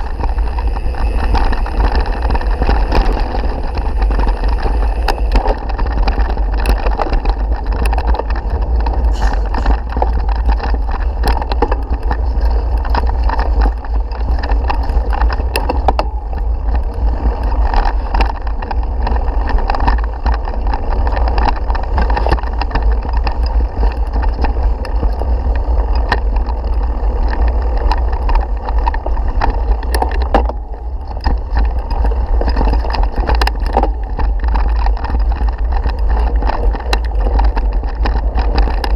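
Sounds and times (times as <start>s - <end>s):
bike knocking and rattling: 0.0s - 38.9s
wind and vibration rumble: 0.0s - 38.9s.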